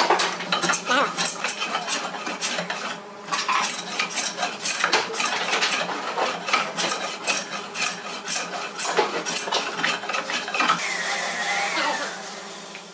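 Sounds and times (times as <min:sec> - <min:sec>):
hand plane shaving wood: 0:03.6 - 0:10.7.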